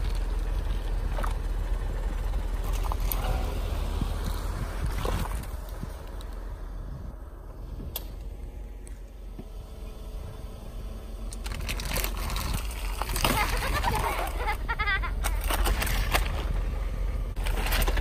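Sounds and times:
car rolling on asphalt: 0.0 - 18.0
plastic bottles crackling: 11.3 - 14.6, 15.2 - 16.6, 17.4 - 18.0.

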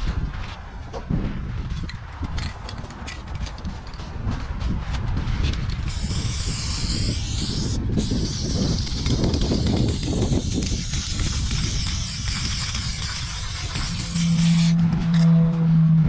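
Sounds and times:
low rumble: 0.0 - 16.0
spray paint can hissing: 5.5 - 14.8.

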